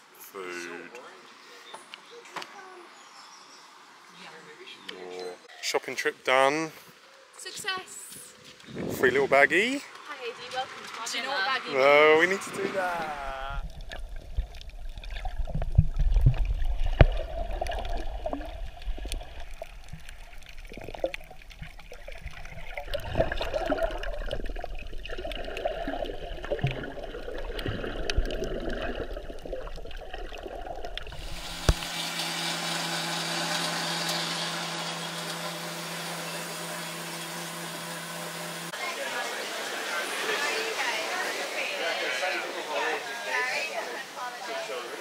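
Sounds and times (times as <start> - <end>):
muffled underwater rushing: 12.4 - 32.0.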